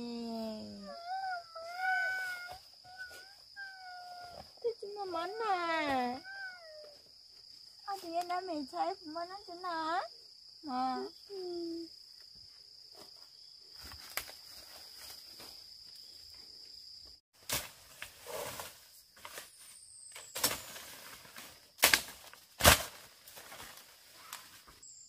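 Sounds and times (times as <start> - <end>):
high-pitched insect drone: 0.0 - 12.6.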